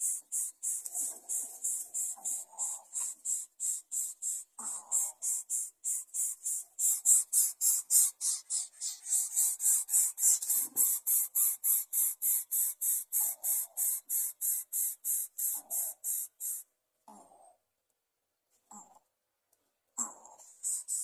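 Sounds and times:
bird chicks hissing: 0.0s - 16.7s, 20.0s - 21.0s.

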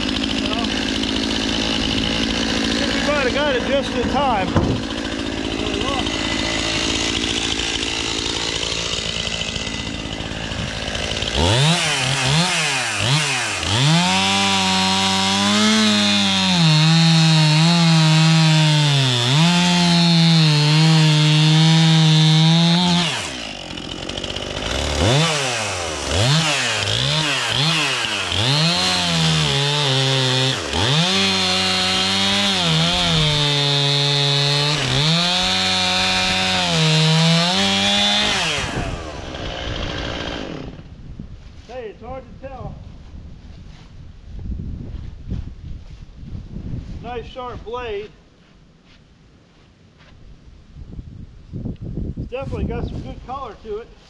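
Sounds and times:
chainsaw cutting log: 0.0s - 41.0s.

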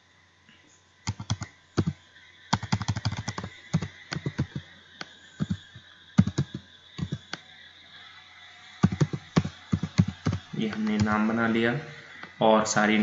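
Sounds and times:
faint steady hum: 0.0s - 13.0s
keyboard typing clicks: 1.0s - 7.4s, 8.8s - 11.2s.

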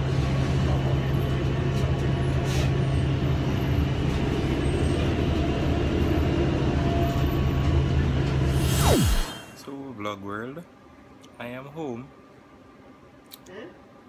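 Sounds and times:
bus engine hum: 0.0s - 9.5s.

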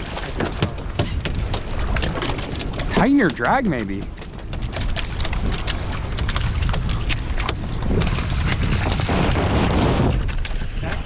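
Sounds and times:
waves sloshing against boat hull: 0.0s - 11.0s
wind across microphone: 0.0s - 11.0s.

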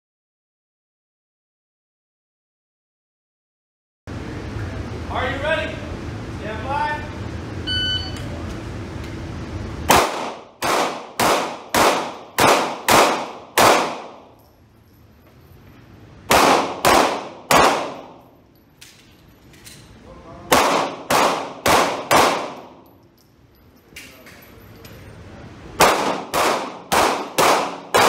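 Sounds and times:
pistol shots echoing indoors: 9.9s - 14.4s, 16.2s - 19.9s, 20.5s - 23.0s, 25.8s - 28.0s.

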